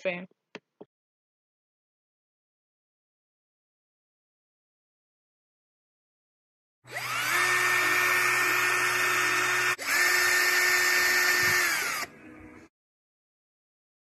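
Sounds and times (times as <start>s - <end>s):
cordless drill whining: 6.9s - 12.1s.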